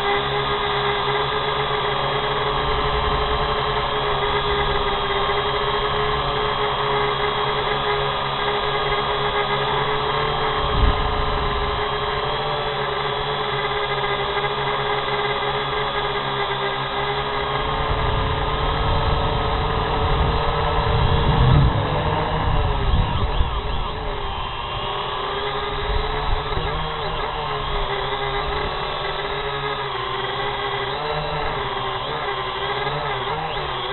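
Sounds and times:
drone propellers whining: 0.0s - 33.9s
low rumble: 20.8s - 23.0s.

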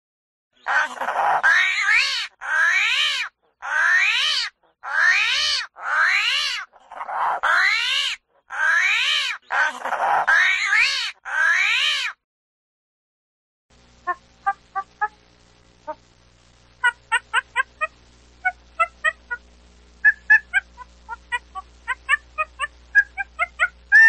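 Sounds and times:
animal meow-like cries: 0.7s - 12.2s.

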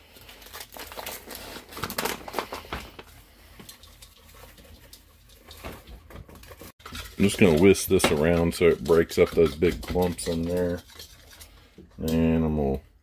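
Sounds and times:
paper packaging crinkling and tearing: 0.0s - 9.2s.

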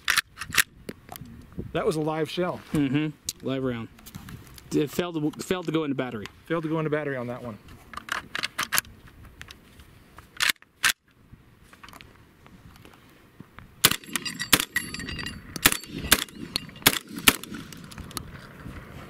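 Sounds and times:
shotgun shots: 13.8s - 18.0s
shotgun action locking back: 13.8s - 18.2s.

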